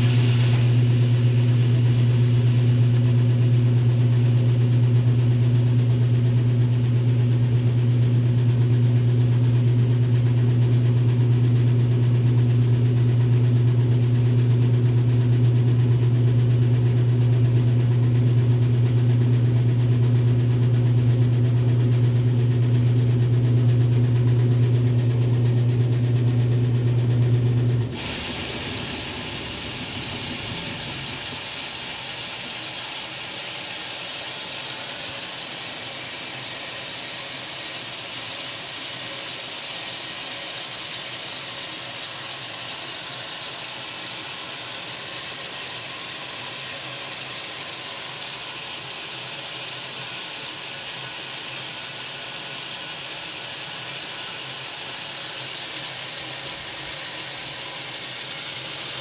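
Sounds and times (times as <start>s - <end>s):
water rushing into tub: 0.0s - 4.0s, 27.9s - 59.0s
washing machine motor hum: 0.0s - 59.0s.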